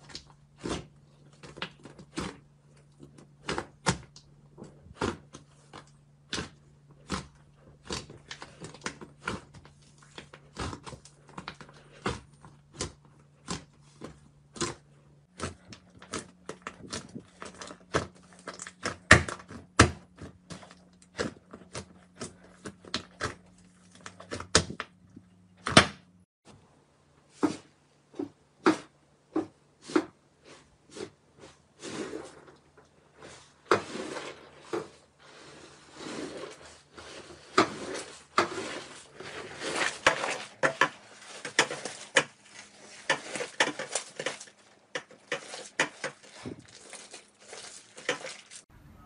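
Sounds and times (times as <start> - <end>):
faint low hum: 48.7 - 49.0.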